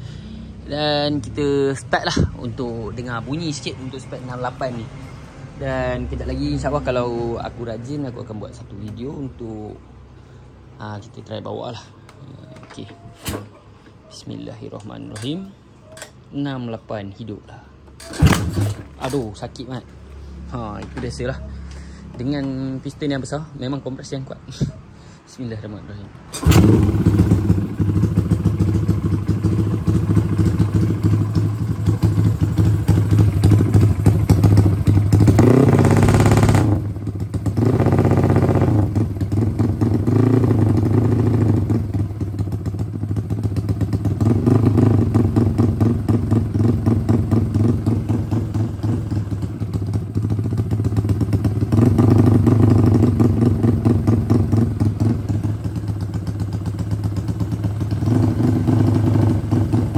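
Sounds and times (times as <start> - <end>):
motorcycle engine revving: 18.0 - 19.4, 26.3 - 59.9
motorcycle kick start: 18.0 - 19.4, 26.3 - 39.4.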